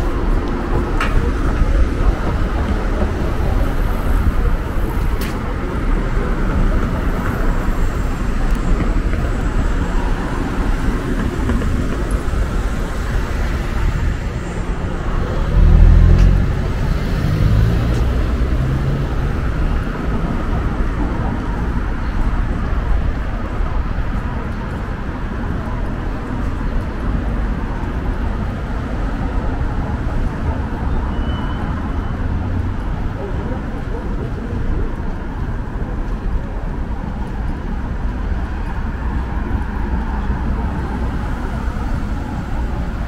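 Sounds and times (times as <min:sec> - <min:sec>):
cars passing on street: 0:00.0 - 0:43.0
loud vehicle passing: 0:12.4 - 0:20.4.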